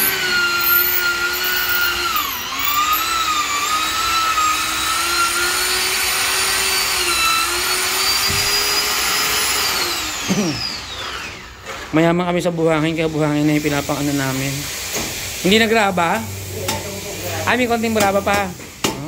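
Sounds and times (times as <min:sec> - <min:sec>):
electric power tool whine: 0:00.0 - 0:12.0.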